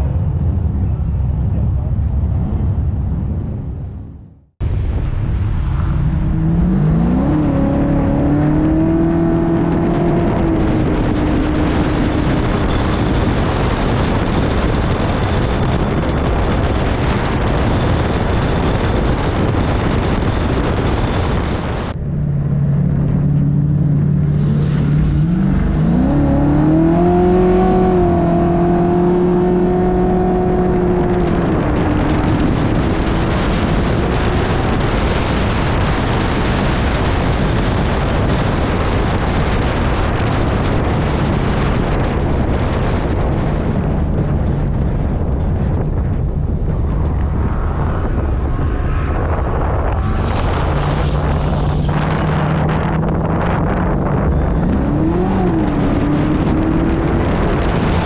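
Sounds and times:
truck engine revving high: 5.4 - 58.0
wind hiss on microphone: 48.1 - 58.0.

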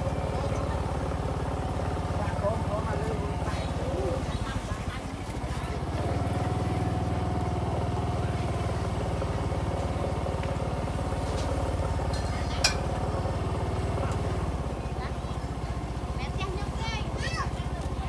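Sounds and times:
scooter engine humming: 0.0 - 18.0.

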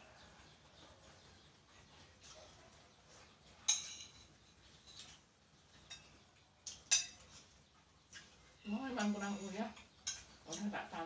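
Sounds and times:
spoons clinking on plates: 3.6 - 10.9.

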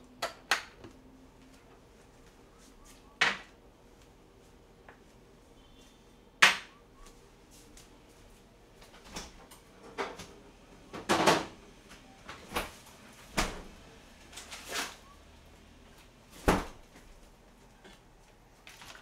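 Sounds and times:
kitchen knocks and clunks: 10.9 - 11.6, 16.4 - 16.8.

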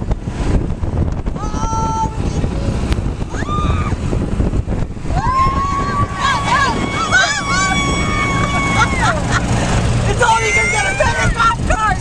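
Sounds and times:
golf cart rumbling on dirt road: 0.0 - 12.0
wind buffeting microphone: 0.0 - 12.0
people whooping: 3.3 - 4.0, 5.1 - 9.5.

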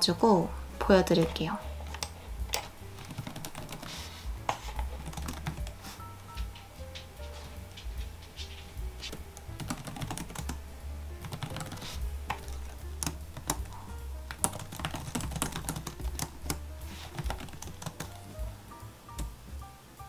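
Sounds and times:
laptop keyboard typing: 1.1 - 7.0, 9.0 - 10.6, 11.2 - 18.4.

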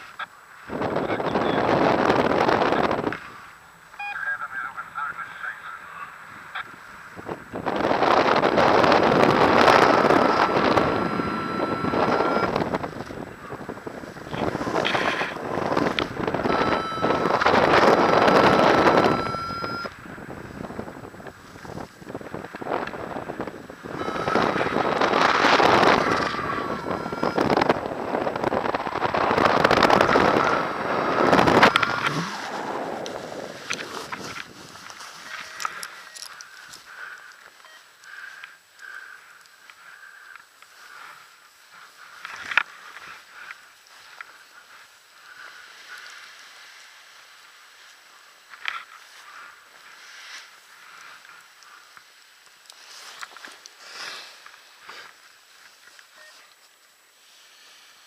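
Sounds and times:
wind buffeting microphone: 0.6 - 3.6, 6.2 - 35.8.

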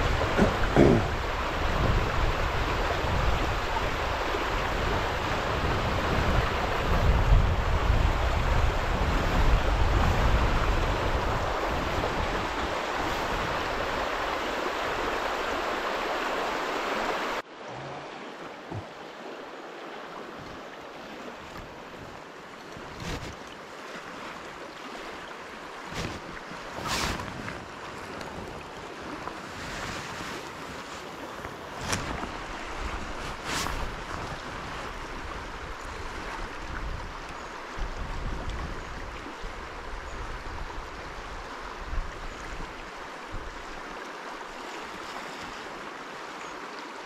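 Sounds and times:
wind buffeting microphone: 0.0 - 14.0
river water rushing over stones: 0.0 - 47.0
smooth river flow: 0.0 - 47.0.

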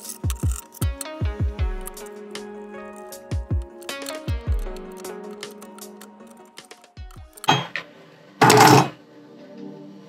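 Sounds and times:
pliers clacking on metal: 7.1 - 7.8, 8.4 - 9.0
metal rattle: 8.4 - 9.0.

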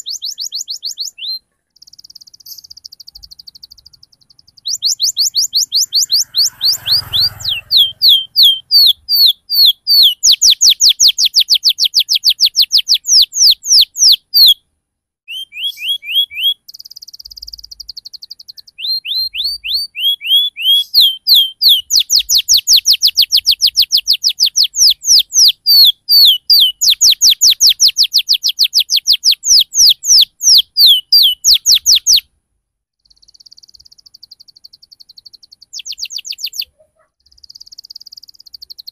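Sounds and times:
canary singing: 0.0 - 14.7, 15.3 - 32.3, 33.0 - 38.9.

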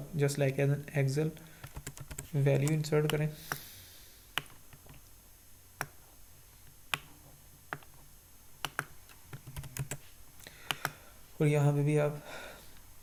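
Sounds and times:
computer mouse clicks: 4.3 - 5.1, 8.6 - 10.0, 10.6 - 11.0.

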